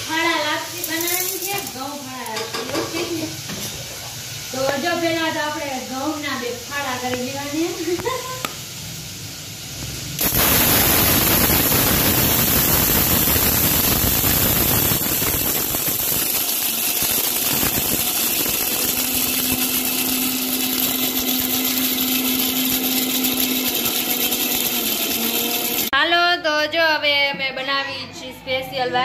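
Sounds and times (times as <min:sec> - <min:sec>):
mixer grinder grinding wheat: 0:00.0 - 0:02.0, 0:10.2 - 0:26.0.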